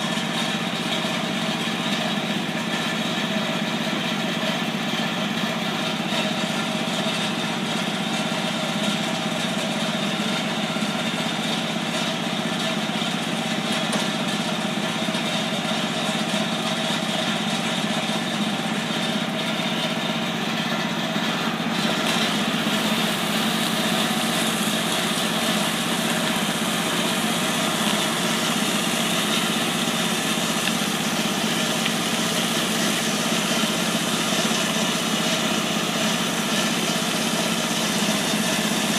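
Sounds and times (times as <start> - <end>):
truck engine running: 0.0 - 38.9
steady spray hiss: 22.0 - 38.9.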